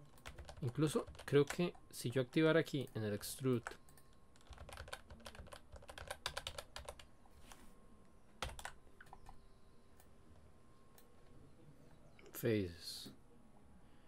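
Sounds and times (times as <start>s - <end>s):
keyboard and mouse clicking: 2.8s - 7.1s.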